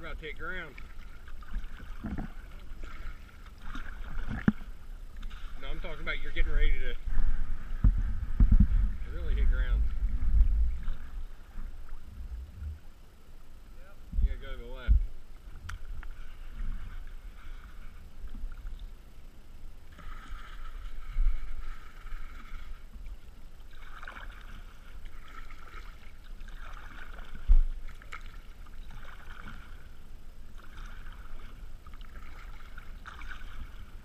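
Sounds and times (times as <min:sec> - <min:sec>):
paddle splashing water: 0:00.0 - 0:13.4, 0:14.3 - 0:34.0
low microphone rumble: 0:01.1 - 0:23.6.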